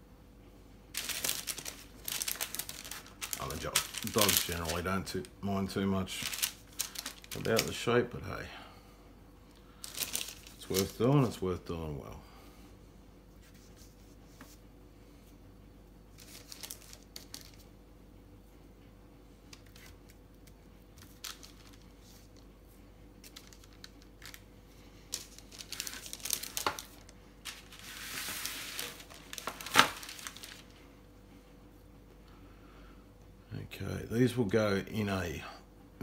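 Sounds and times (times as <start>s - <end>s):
baking paper rustling: 0.9s - 8.2s, 9.7s - 11.6s, 16.1s - 17.7s, 19.6s - 30.9s.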